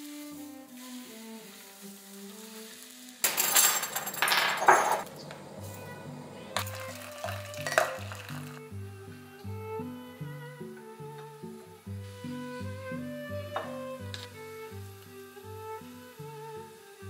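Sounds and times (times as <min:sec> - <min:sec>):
light background music: 0:05.5 - 0:17.0.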